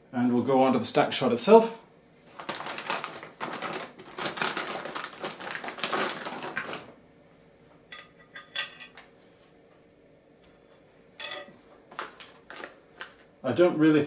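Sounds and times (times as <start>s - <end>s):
plastic bag crinkling: 2.3s - 7.0s, 11.9s - 13.3s.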